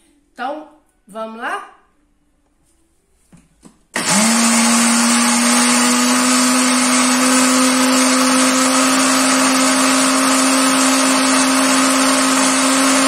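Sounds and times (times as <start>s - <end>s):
blender grinding herbs: 4.0s - 13.0s.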